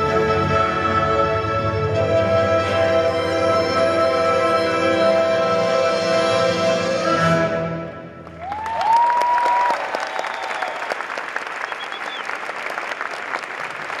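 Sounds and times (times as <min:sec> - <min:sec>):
audience applause: 0:08.3 - 0:14.0
rising whistles from crowd: 0:08.4 - 0:12.4.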